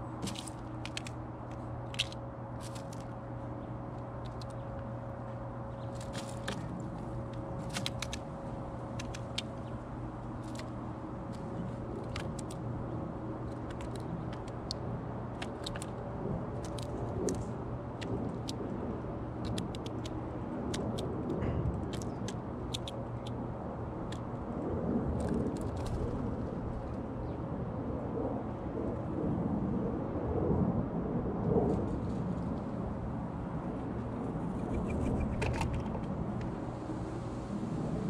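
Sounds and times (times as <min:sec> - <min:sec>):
bird pecking on feeder tray: 0:05.8 - 0:12.6, 0:13.5 - 0:16.0, 0:21.8 - 0:23.3.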